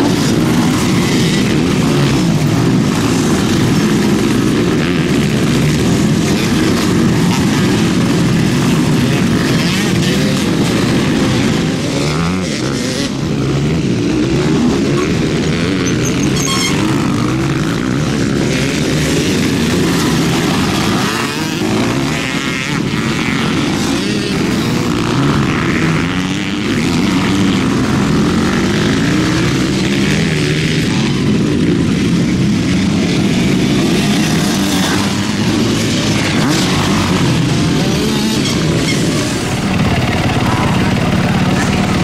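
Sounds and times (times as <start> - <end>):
motocross bike engines revving: 0.0 - 42.0.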